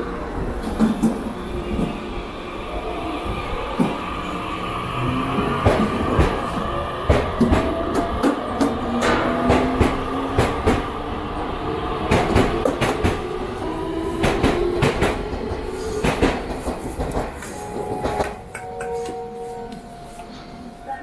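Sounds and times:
train wheels clicking over rail joints: 5.6s - 10.9s, 12.1s - 13.4s, 14.2s - 18.4s.

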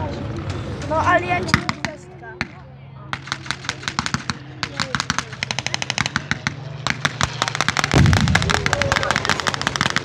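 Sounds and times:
steady low hum: 0.0s - 10.0s
pyrotechnic gunfire cracks: 3.2s - 10.0s
heavy pyrotechnic blast: 6.8s - 10.0s.

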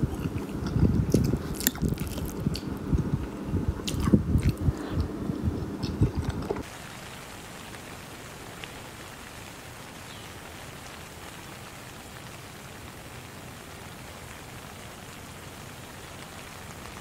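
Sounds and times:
rain pattering: 0.0s - 17.0s.

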